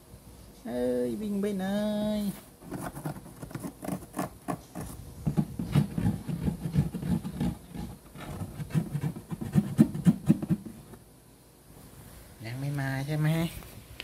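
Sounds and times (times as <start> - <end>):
fingers scratching cardboard: 2.6 - 10.8.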